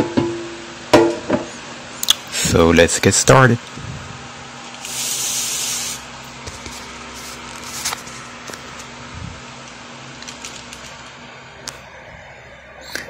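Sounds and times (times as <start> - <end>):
short hiss: 4.8 - 6.0.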